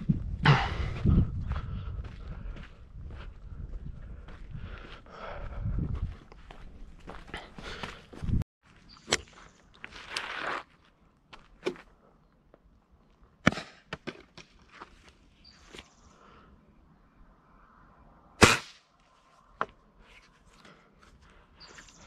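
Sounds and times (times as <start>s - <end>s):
pellet rifle shot: 18.4s - 18.8s.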